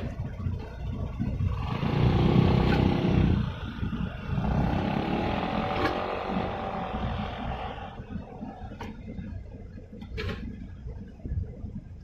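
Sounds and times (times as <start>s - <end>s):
engine running: 0.0s - 9.2s
low rumble: 0.0s - 12.0s.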